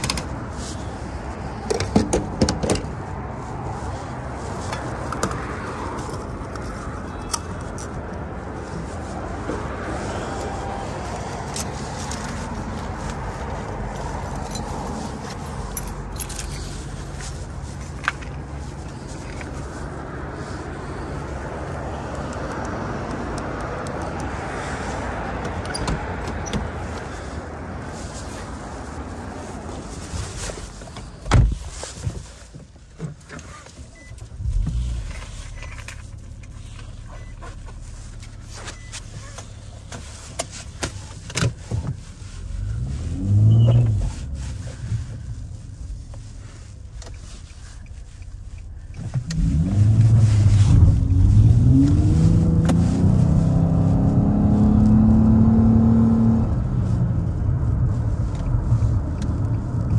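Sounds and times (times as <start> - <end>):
low rumble of vehicles: 0.0 - 59.9
car engine starting and idling: 8.6 - 59.9
keys jangling: 14.3 - 17.0
car door shutting: 31.2 - 31.6.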